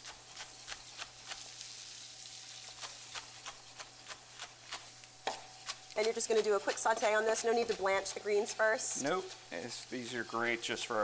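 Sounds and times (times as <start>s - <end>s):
faint sizzle from pan: 0.0s - 11.0s
knife chopping on wooden board: 2.8s - 8.6s.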